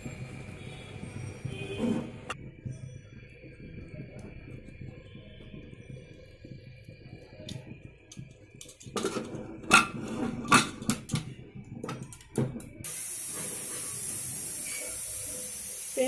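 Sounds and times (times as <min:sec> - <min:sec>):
oil hissing in a pan: 0:12.8 - 0:16.0.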